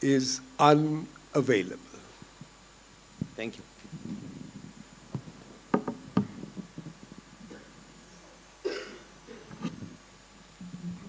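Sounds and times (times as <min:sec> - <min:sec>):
microphone handling knocks: 0:03.2 - 0:07.7.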